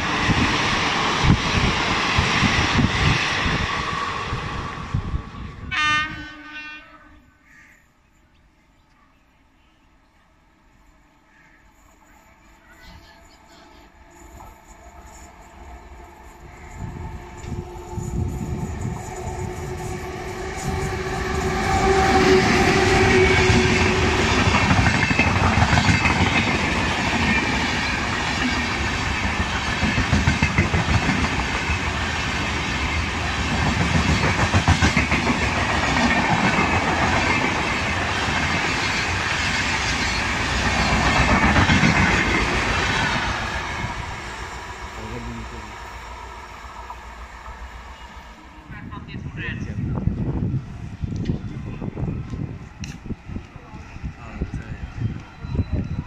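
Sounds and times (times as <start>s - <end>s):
train coaches rushing past: 0.0s - 6.4s, 10.4s - 56.0s
train horn: 5.6s - 7.4s, 16.0s - 24.8s.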